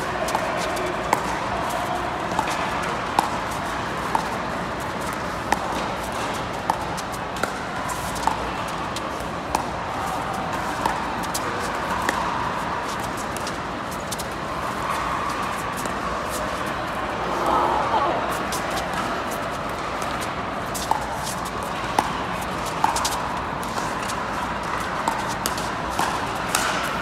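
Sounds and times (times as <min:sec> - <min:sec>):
murmur of indoor hall: 0:00.0 - 0:27.0.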